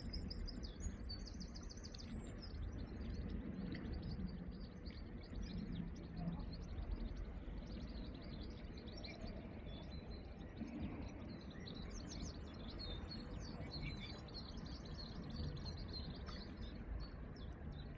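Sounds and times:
small birds chirping: 0:00.0 - 0:17.9.

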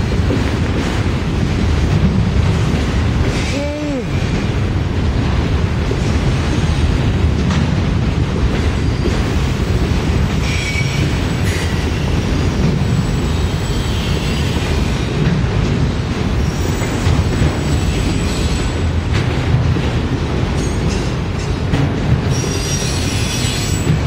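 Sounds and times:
train wheels rumbling on rail: 0:00.0 - 0:24.0
high wheel squeal: 0:10.4 - 0:12.0, 0:22.3 - 0:23.9.

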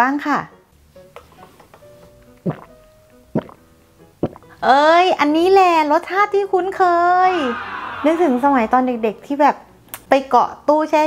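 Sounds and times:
faint background music: 0:00.0 - 0:11.0
gulping through a straw: 0:02.4 - 0:02.7, 0:03.4 - 0:03.6.

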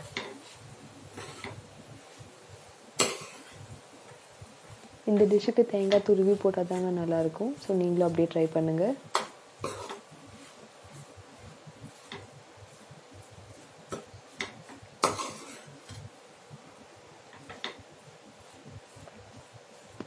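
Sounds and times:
metal spatula scraping pan: 0:00.0 - 0:01.6, 0:09.2 - 0:11.1, 0:13.9 - 0:16.0.

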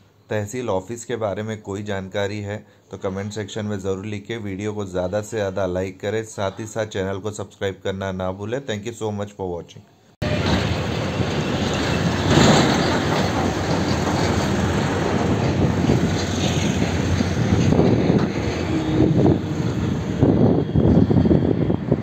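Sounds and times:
road traffic: 0:10.2 - 0:22.0
wind on microphone: 0:13.7 - 0:22.0.

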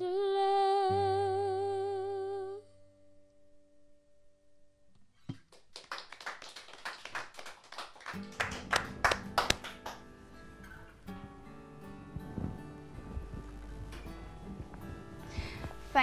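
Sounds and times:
people clapping: 0:05.3 - 0:10.8
background music: 0:08.5 - 0:16.0.

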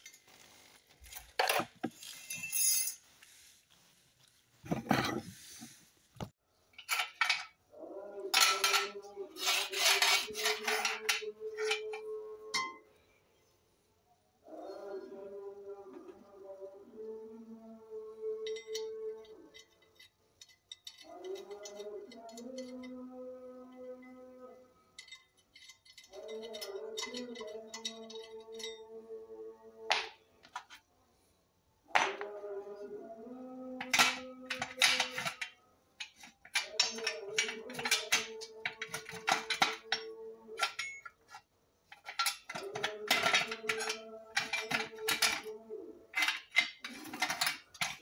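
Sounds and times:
steel parts knocking and clinking: 0:33.8 - 0:45.5.

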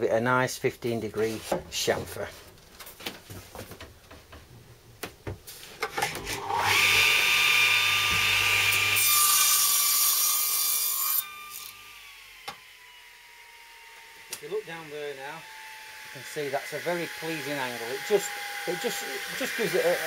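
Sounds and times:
mitre saw cutting wood: 0:06.0 - 0:20.0.

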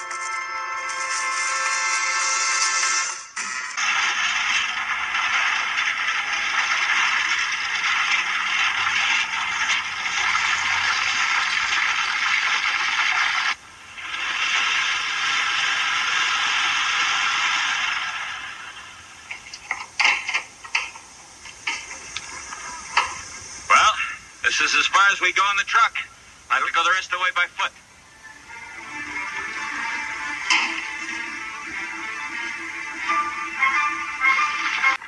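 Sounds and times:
truck rattling over dirt track: 0:03.8 - 0:23.7, 0:28.8 - 0:35.0.

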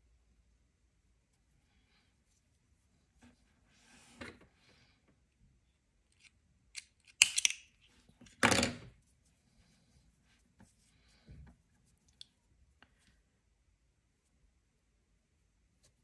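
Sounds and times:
faint handling of fabric: 0:01.2 - 0:05.0, 0:08.9 - 0:16.0.

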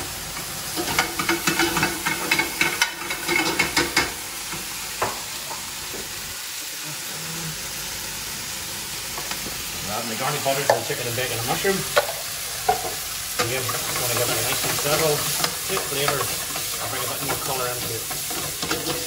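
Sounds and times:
food sizzling in a frying pan: 0:00.0 - 0:19.0
metal utensil scraping a pan: 0:12.7 - 0:19.0.

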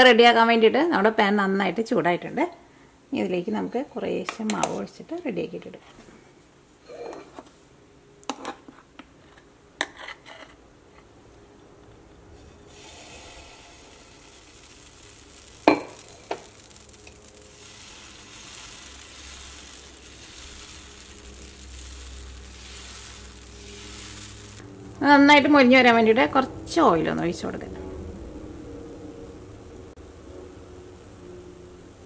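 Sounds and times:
batter sizzling in pan: 0:12.4 - 0:26.3.

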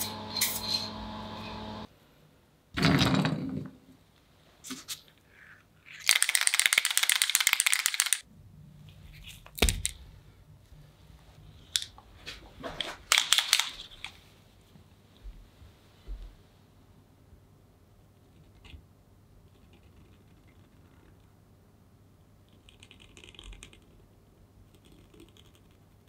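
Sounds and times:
small metal parts clicking: 0:05.9 - 0:08.2.

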